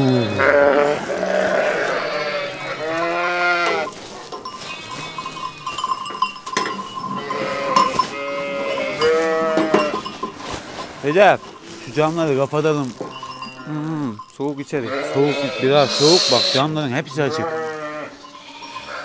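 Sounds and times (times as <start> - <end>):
sheep bleating: 0.0 - 4.0, 4.6 - 5.8, 7.1 - 10.2, 14.8 - 19.0
bell ringing: 3.9 - 19.0.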